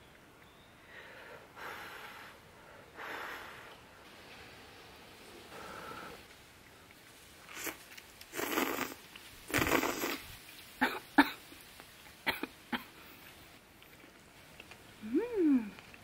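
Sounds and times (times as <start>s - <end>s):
woman slurping noodles: 7.5s - 10.2s.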